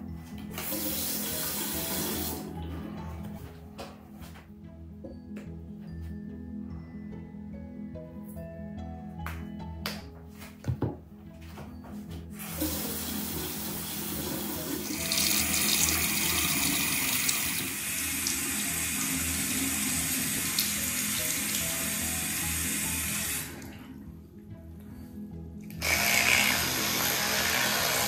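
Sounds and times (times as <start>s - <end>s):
faucet water running: 0.5s - 2.6s, 12.4s - 24.0s.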